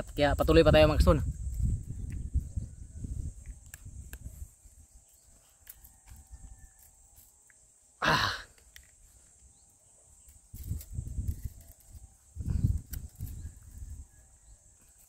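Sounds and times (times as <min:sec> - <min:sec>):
man breathing out with effort: 0:08.0 - 0:08.6.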